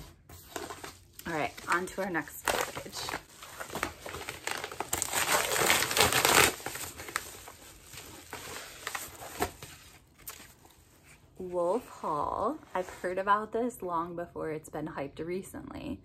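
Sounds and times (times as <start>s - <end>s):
paper package tearing and crinkling: 0.5s - 10.8s.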